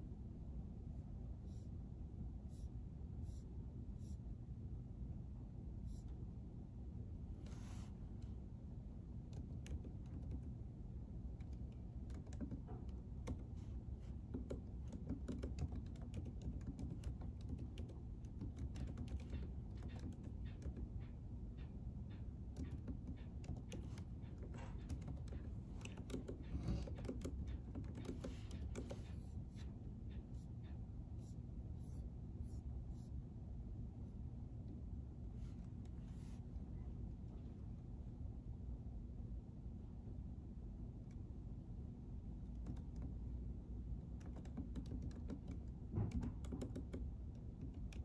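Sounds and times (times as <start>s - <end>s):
low room hum: 0.0s - 48.0s
computer keyboard typing: 9.2s - 21.1s, 22.4s - 29.3s, 42.5s - 43.2s, 44.1s - 48.0s.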